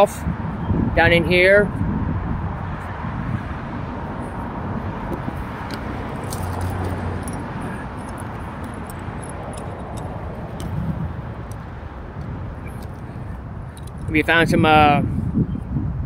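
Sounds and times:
steady low rumble: 1.7 - 16.0
metallic clicks and clinks: 5.6 - 11.6, 13.7 - 14.1.

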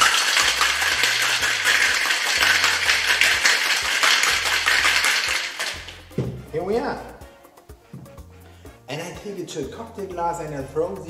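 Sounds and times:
ice rattling in cocktail shaker: 0.0 - 6.2.

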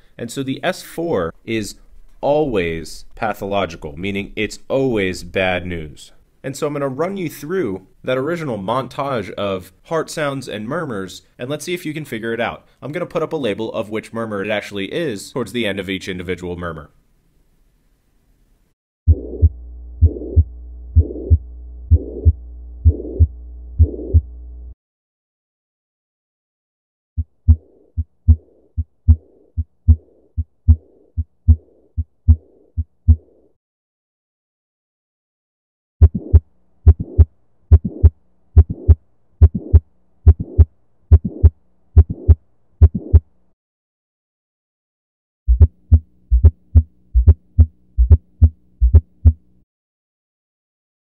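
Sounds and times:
blowing heart murmur: 19.1 - 24.3, 27.2 - 33.3, 36.0 - 43.2, 45.5 - 49.4
heartbeat thuds: 19.1 - 24.4, 27.2 - 33.3, 36.0 - 43.3, 45.5 - 49.4
low steady hum: 19.1 - 24.8.

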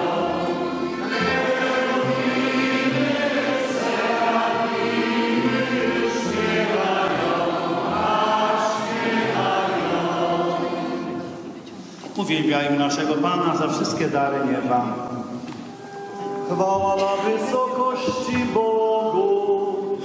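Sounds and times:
choir singing a hymn: 0.0 - 11.6, 16.5 - 20.0.

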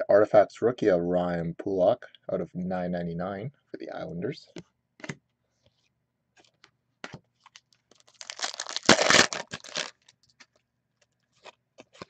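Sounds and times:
wrapper tearing and crinkling: 7.4 - 10.6.

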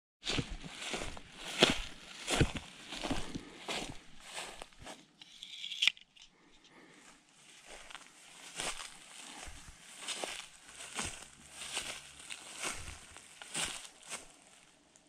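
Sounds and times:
footsteps crunching dry grass: 0.2 - 5.8, 6.8 - 15.0
saw blade scraping open: 5.2 - 6.3.

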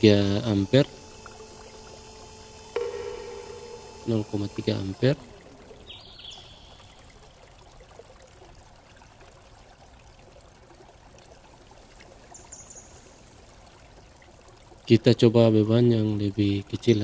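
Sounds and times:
faint steady hiss: 0.0 - 9.1.

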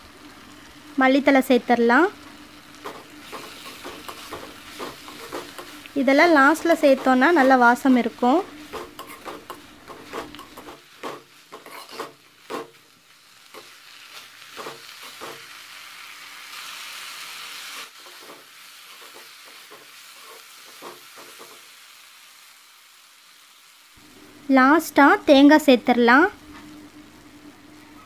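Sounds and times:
vegetables sizzling: 0.0 - 28.0
spoon stirring and scraping metal pan: 2.8 - 12.9, 13.5 - 15.5, 17.7 - 21.7.

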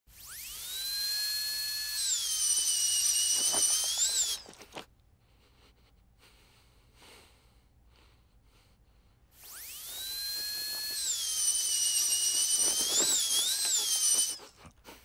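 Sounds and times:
dental drill whining: 0.1 - 4.8, 9.3 - 14.8.

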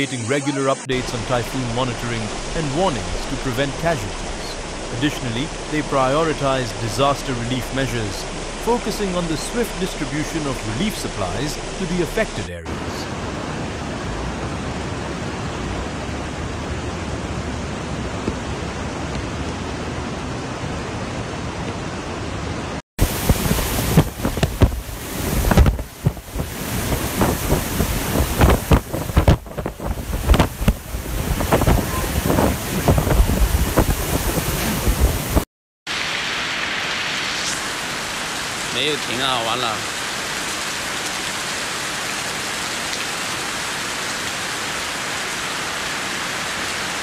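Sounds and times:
floodwater rushing: 0.0 - 21.1, 23.0 - 47.0
rain noise: 0.0 - 47.0
gusty wind: 12.7 - 35.4.

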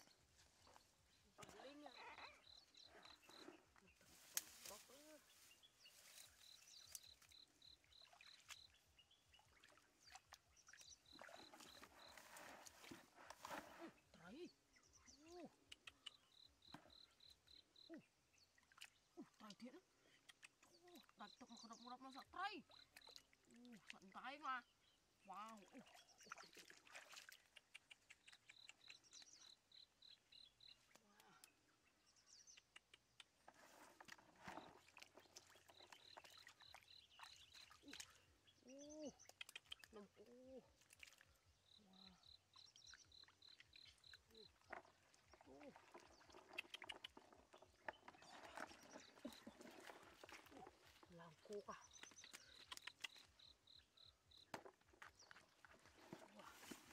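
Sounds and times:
hands working in muddy water: 0.0 - 56.9
hands splashing in muddy water: 25.5 - 29.0.

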